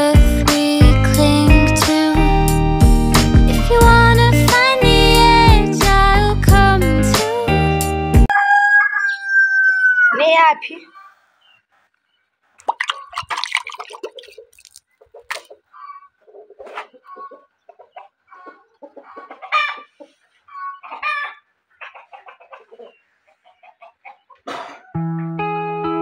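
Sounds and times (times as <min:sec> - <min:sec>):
chickens clucking: 0:10.7 - 0:13.4, 0:14.0 - 0:25.0.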